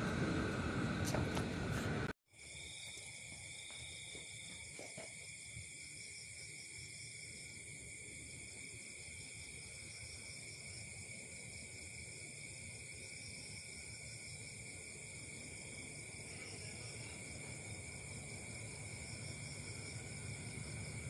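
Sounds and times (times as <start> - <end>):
train rumble: 0.0 - 2.1, 16.1 - 21.0
night insects chirring: 2.3 - 21.0.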